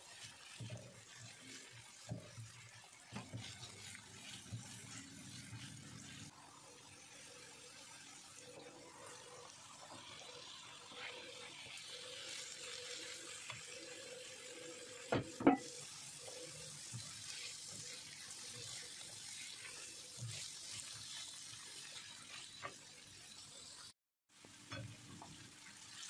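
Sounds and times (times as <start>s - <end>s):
vegetables sizzling in a pan: 0.0s - 26.0s
sharp knocks against pan: 15.1s - 15.7s.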